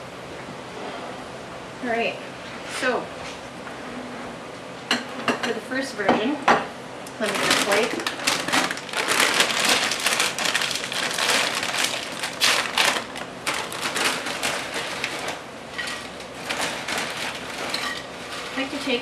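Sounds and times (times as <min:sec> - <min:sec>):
plastic bags crinkling: 0:07.2 - 0:19.0.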